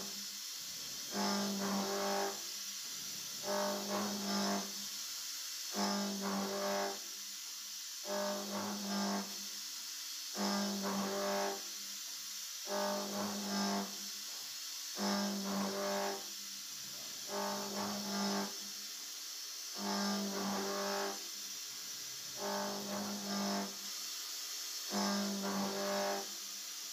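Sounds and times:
steady hiss: 0:00.0 - 0:26.9
milling machine cutting metal hum: 0:01.1 - 0:02.4, 0:03.4 - 0:04.7, 0:05.8 - 0:07.0, 0:08.1 - 0:09.3, 0:10.4 - 0:11.6, 0:12.7 - 0:14.0, 0:15.0 - 0:16.3, 0:17.2 - 0:18.6, 0:19.8 - 0:21.2, 0:22.2 - 0:23.8, 0:24.9 - 0:26.3.

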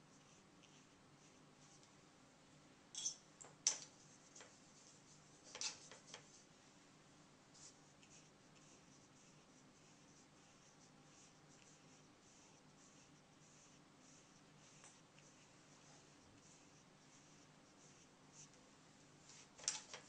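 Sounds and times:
paintbrush brushing on paper: 0:00.0 - 0:01.8, 0:03.9 - 0:06.6, 0:07.5 - 0:20.0.

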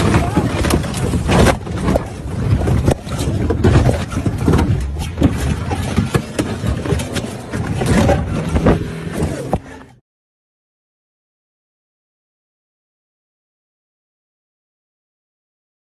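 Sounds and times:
vehicle engine running: 0:04.0 - 0:10.0.

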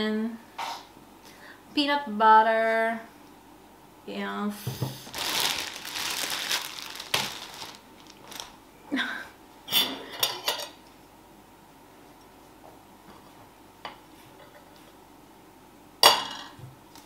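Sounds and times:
plastic bag crinkling: 0:05.0 - 0:08.6.

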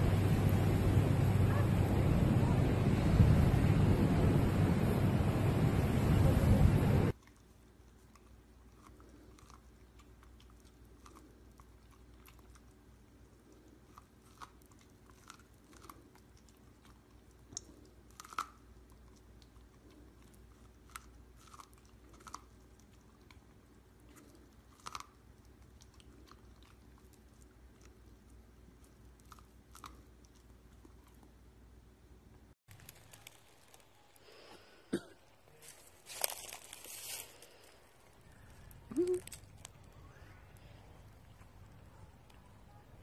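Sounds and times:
dog crunching corn: 0:07.1 - 0:31.4, 0:32.7 - 0:34.4, 0:35.4 - 0:42.8.

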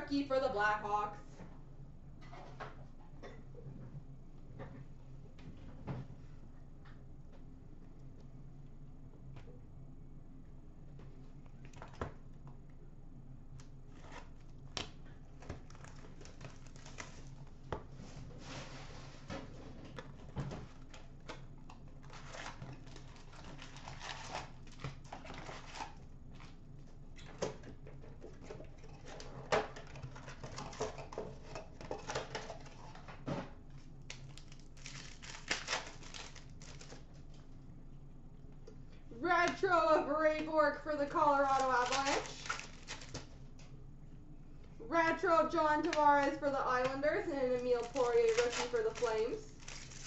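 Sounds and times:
cardboard and wrappers tearing: 0:15.6 - 0:17.4, 0:22.0 - 0:26.0, 0:34.1 - 0:37.1, 0:41.3 - 0:43.3, 0:47.4 - 0:50.0.

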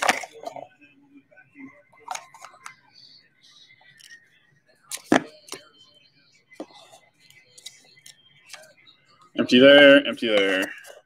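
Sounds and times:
trading cards rustling: 0:10.2 - 0:11.0.

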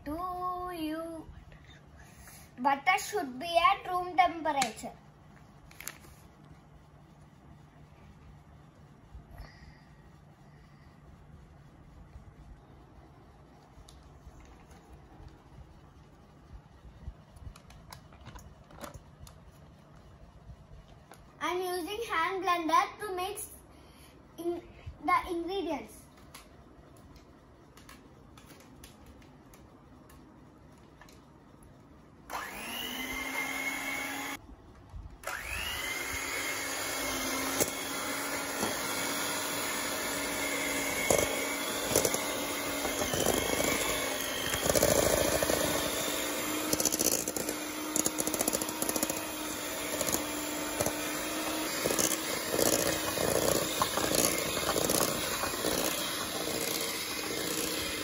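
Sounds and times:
electric hand mixer whining: 0:32.3 - 0:34.4, 0:35.2 - 0:58.0.

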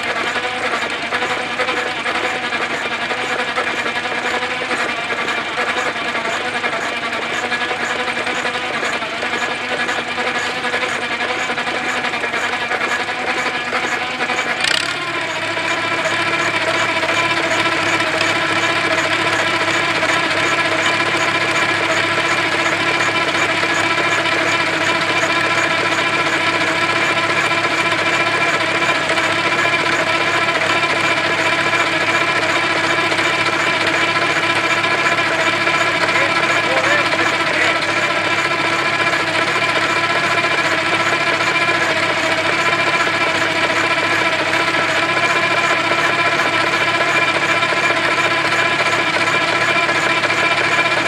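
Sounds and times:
fast mechanical clatter: 0:00.0 - 0:51.0
tractor engine running: 0:00.0 - 0:51.0
sharp click: 0:14.6 - 0:15.0.

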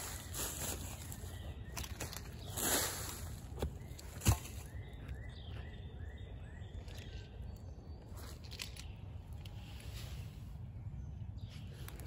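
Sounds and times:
rustling in dry leaf litter: 0:00.0 - 0:04.6.

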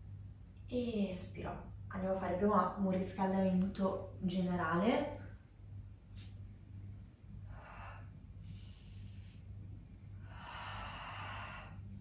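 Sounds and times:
steady low hum: 0:00.0 - 0:12.0
woman breathing: 0:07.3 - 0:12.0.

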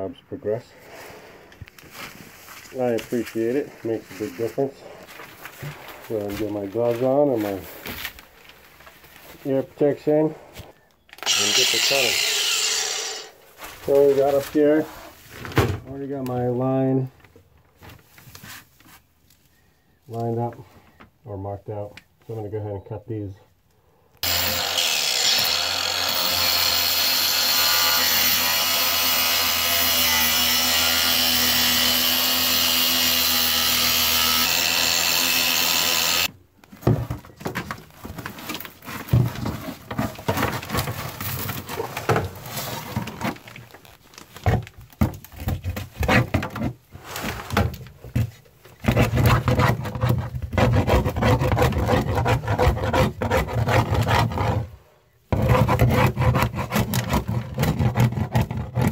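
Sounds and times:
power cutter cutting: 0:11.2 - 0:13.4, 0:24.2 - 0:36.3
scraping and rubbing: 0:36.9 - 0:44.6, 0:45.2 - 0:54.8.

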